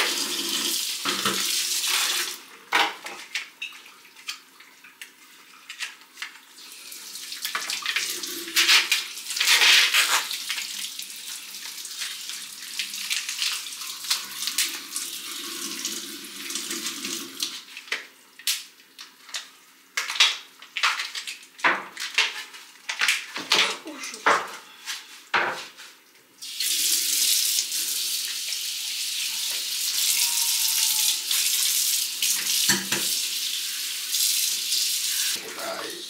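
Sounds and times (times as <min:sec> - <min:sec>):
tap water running into sink: 0:00.0 - 0:18.1, 0:26.4 - 0:36.0.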